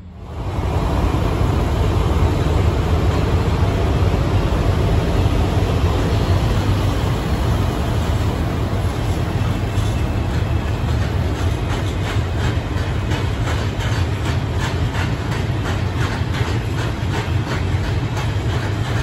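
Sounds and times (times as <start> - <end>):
diesel locomotive engines rumbling: 0.0 - 19.0
wheel clicks over rail joints: 9.8 - 19.0.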